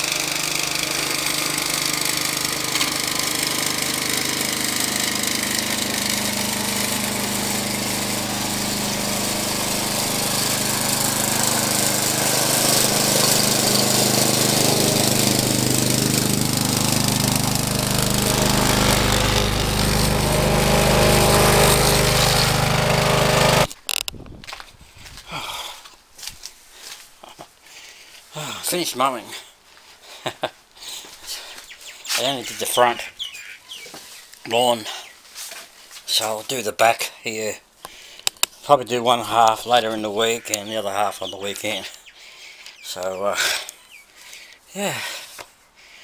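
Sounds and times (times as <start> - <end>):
petrol lawn mower running: 0.0 - 24.0.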